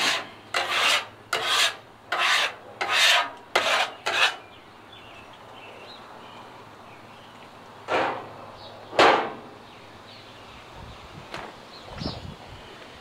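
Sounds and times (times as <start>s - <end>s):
griddle scraper rasping on steel: 0.0s - 4.4s.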